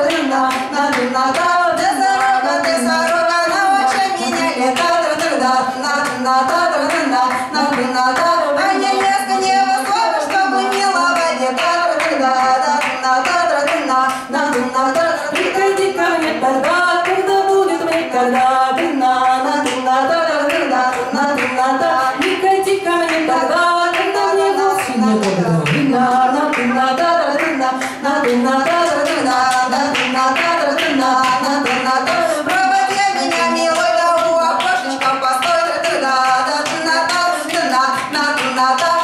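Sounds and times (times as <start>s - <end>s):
rhythmic hand claps: 0.0s - 39.0s
women singing folk song: 0.0s - 39.0s.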